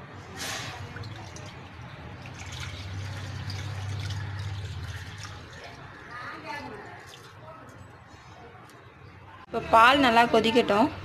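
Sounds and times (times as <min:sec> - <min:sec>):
milk pouring into a pan: 0:00.7 - 0:07.4.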